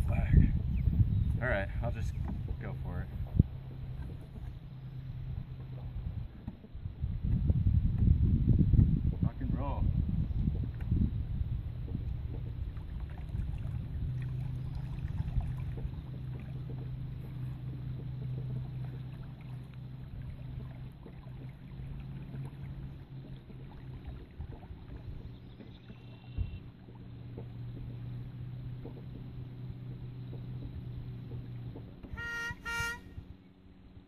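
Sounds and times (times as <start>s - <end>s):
electric boat motor humming: 0.6s - 8.8s, 10.0s - 34.0s.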